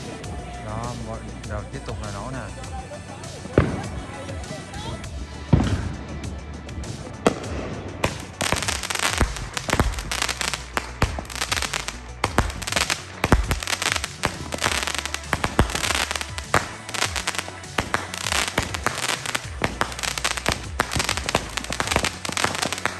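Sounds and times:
deep firework thumps: 5.1 - 22.9
firework pops and crackling: 6.8 - 22.9
firework spraying sparks: 6.8 - 22.9.

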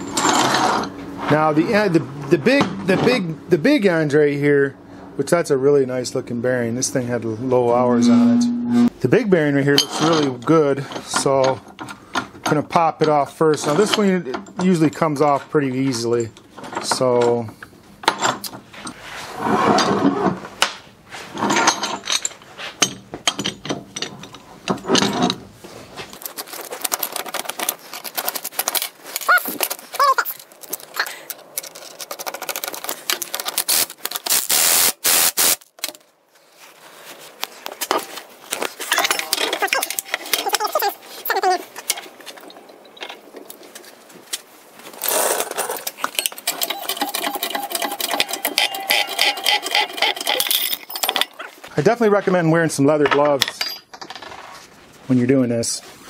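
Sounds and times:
metal tools clinking and scraping: 0.0 - 3.2, 9.6 - 19.1, 21.3 - 34.3, 37.8 - 43.9, 44.9 - 51.7, 53.0 - 54.7.

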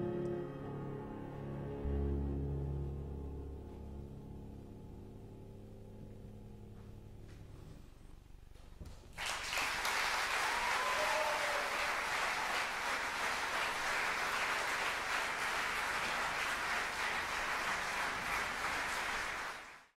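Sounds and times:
audience applauding: 9.1 - 19.9
call from crowd: 10.1 - 15.6.

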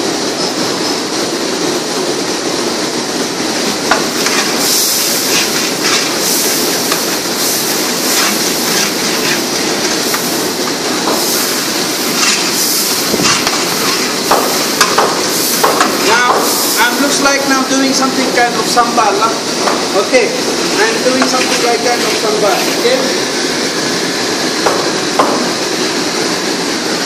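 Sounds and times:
sizzling hiss of cooking: 3.0 - 27.0
metal ladle scraping a pot: 4.2 - 7.1, 8.0 - 10.2, 12.0 - 14.2.

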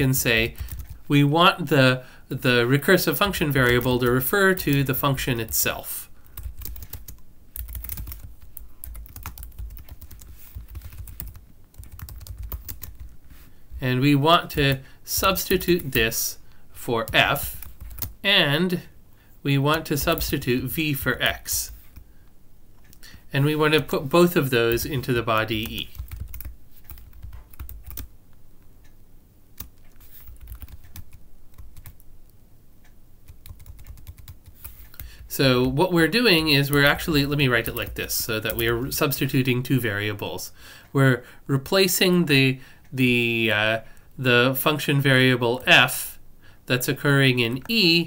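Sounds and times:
keyboard typing: 0.0 - 1.1, 3.2 - 13.2, 17.0 - 18.2, 19.7 - 22.0, 23.8 - 28.1, 29.6 - 32.1, 33.2 - 35.8, 36.4 - 39.4.

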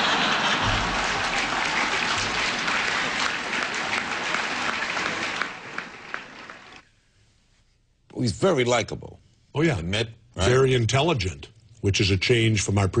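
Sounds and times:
large audience applauding: 0.0 - 6.8.

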